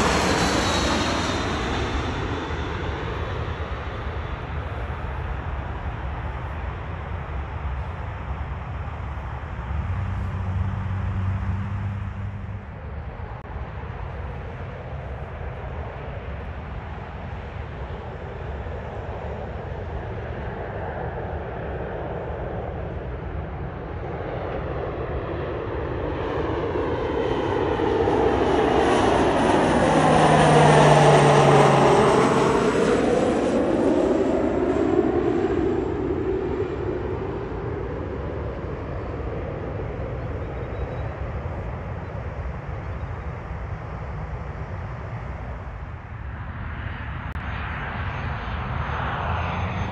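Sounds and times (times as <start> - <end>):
high turbine whine: 0.0 - 3.9
jet passing low overhead: 0.0 - 49.9.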